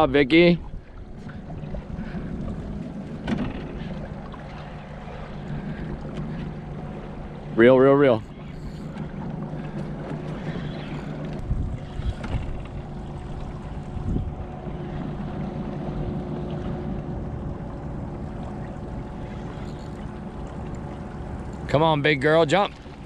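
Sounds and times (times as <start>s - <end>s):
boat motor running: 0.0s - 23.0s
water noise: 0.0s - 23.0s
wind noise: 10.4s - 14.6s.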